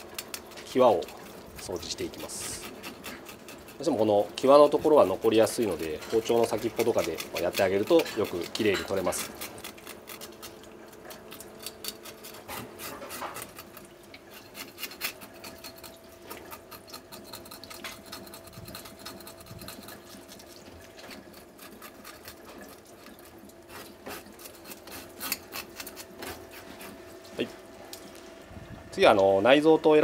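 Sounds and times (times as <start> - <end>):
knife scraping fish scales: 0.0 - 27.2
tap water running: 19.6 - 26.5.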